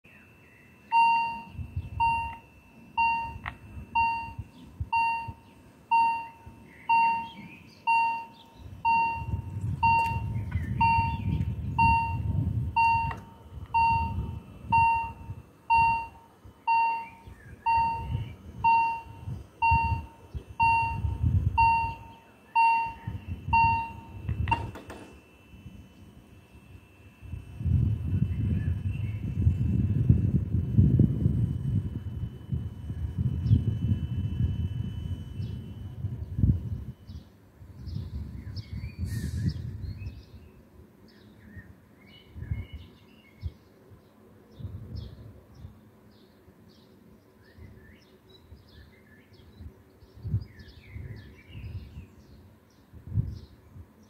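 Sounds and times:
level crossing warning bell: 0:00.1 - 0:28.1, 0:30.4 - 0:37.3.

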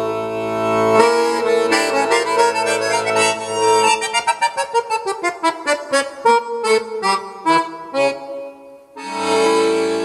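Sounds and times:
accordion music over loudspeakers: 0:00.0 - 0:10.0.

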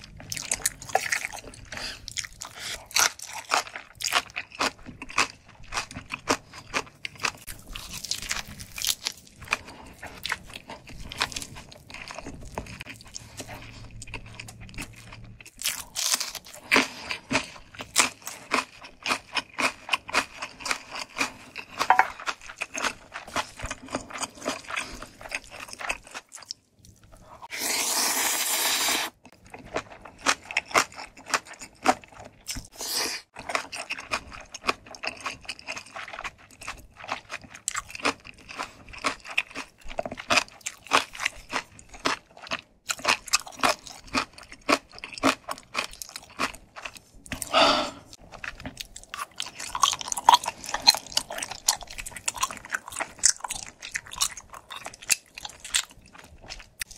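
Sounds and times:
close chewing: 0:00.0 - 0:27.5, 0:29.2 - 0:56.9
noodle slurping: 0:27.4 - 0:29.2.

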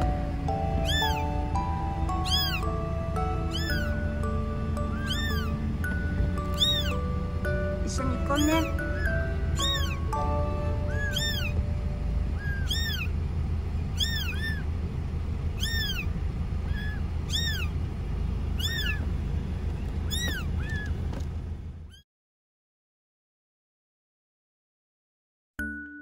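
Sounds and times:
low rumble: 0:00.0 - 0:22.0
kitten mewing: 0:00.8 - 0:01.3, 0:02.2 - 0:02.7, 0:03.4 - 0:04.0, 0:04.9 - 0:05.6, 0:06.6 - 0:07.0, 0:08.4 - 0:11.6, 0:12.4 - 0:13.2, 0:13.9 - 0:14.7, 0:15.6 - 0:17.8, 0:18.6 - 0:19.0, 0:20.1 - 0:21.0.

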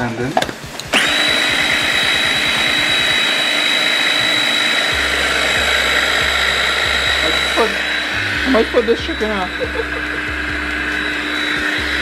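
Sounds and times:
electric food chopper whining: 0:00.4 - 0:12.0.

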